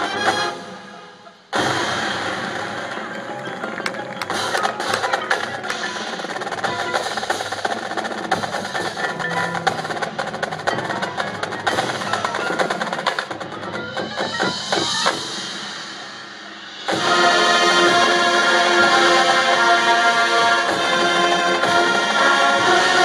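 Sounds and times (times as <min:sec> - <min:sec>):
drumline: 0:00.0 - 0:23.0
marching band playing: 0:00.0 - 0:23.0
mallet instruments: 0:02.8 - 0:15.6.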